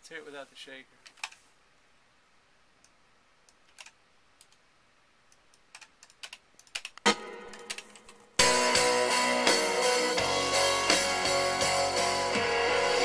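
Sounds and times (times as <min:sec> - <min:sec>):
computer keyboard keystrokes: 0:03.6 - 0:04.6, 0:05.6 - 0:08.2.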